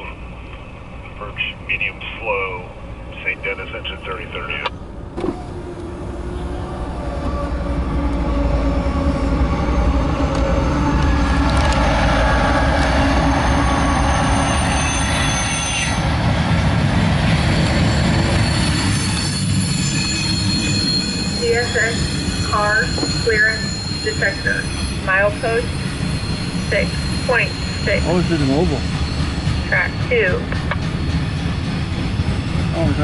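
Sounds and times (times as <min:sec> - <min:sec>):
train wheels on rails: 0:09.8 - 0:33.0
high wheel squeal: 0:12.2 - 0:16.1, 0:17.3 - 0:31.7.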